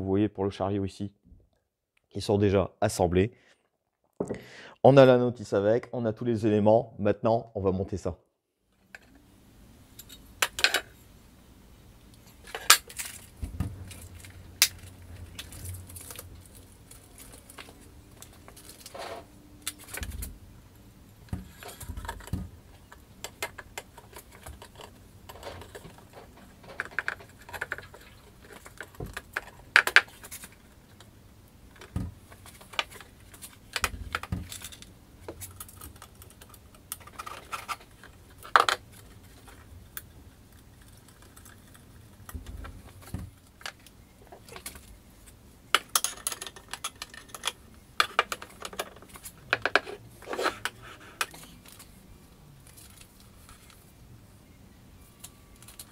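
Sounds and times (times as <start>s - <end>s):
metal parts clinking on wood: 45.7s - 49.0s.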